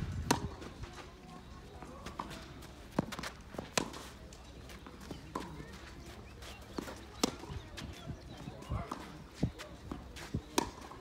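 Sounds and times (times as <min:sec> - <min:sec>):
footsteps on clay: 0:00.0 - 0:11.0
racket hitting tennis ball: 0:00.2 - 0:00.7, 0:10.5 - 0:11.0.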